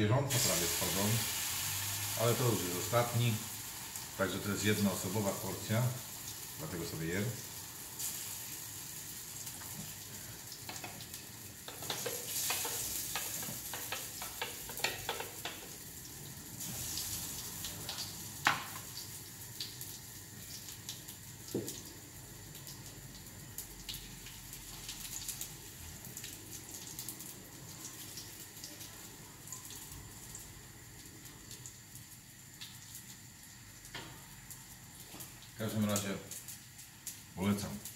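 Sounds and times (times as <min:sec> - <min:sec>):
pancakes sizzling in oil: 0:00.3 - 0:37.9
utensil knocking against pan: 0:11.7 - 0:15.7.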